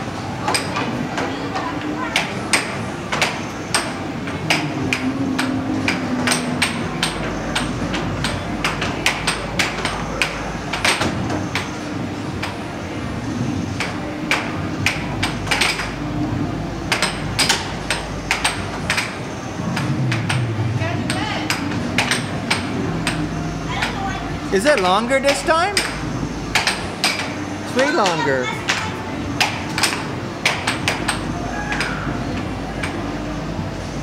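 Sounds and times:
air hockey puck clacking: 2.1s - 11.8s, 13.8s - 16.0s, 16.9s - 24.0s, 24.7s - 33.1s.

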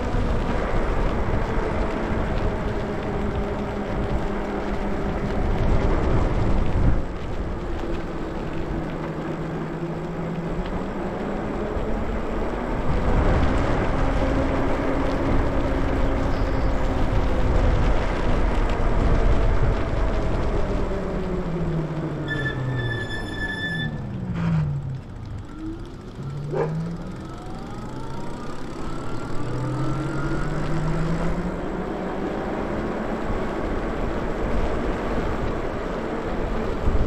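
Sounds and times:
wind on microphone: 0.0s - 9.1s, 10.9s - 22.2s
tyre noise on wet pavement: 0.0s - 37.0s
brief high squeal: 22.2s - 24.0s.

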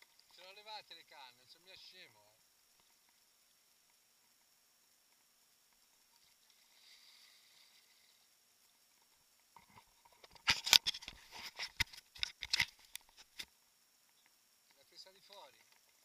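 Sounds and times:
sharp clicks and scrapes: 9.0s - 13.5s.

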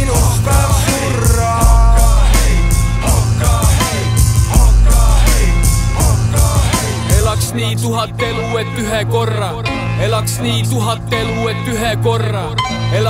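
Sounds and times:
steady drum beat: 0.0s - 7.5s
heavy bass: 0.0s - 13.0s.

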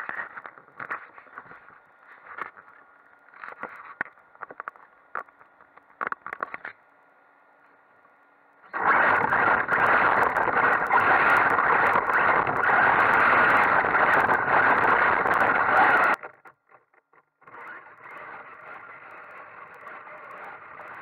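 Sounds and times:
drivetrain and tyre noise: 8.8s - 16.2s.

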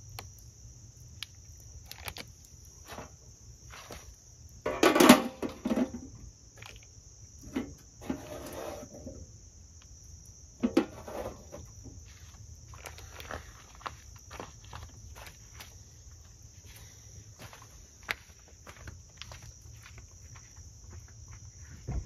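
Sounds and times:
insects trilling: 0.0s - 22.0s
metal grill lid clattering: 4.7s - 6.0s.

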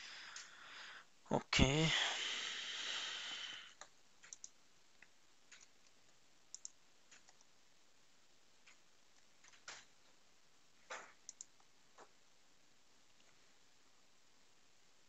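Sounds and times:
computer mouse clicks: 3.8s - 7.5s, 10.9s - 12.1s.

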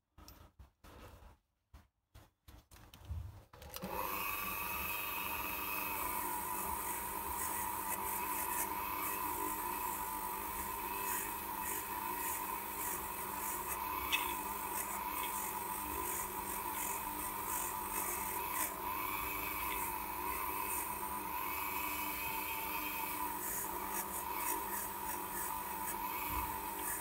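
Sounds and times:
rotary tool whining: 3.8s - 27.0s
bit rasping against steel: 10.9s - 20.0s.

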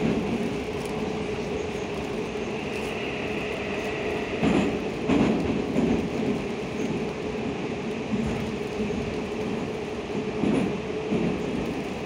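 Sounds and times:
metro car rolling rumble: 0.0s - 12.0s.

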